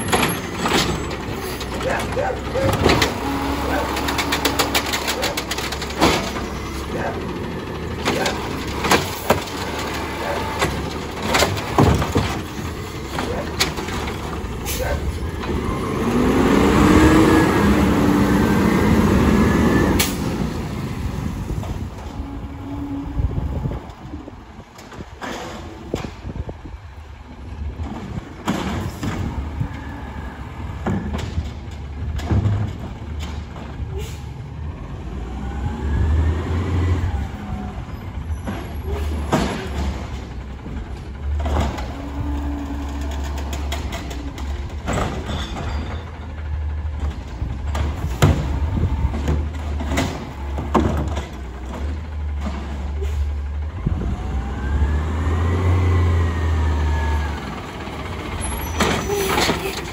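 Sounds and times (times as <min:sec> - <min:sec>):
diesel engine rumbling and revving: 0:00.0 - 0:59.9
air brakes hissing: 0:33.9 - 0:34.4.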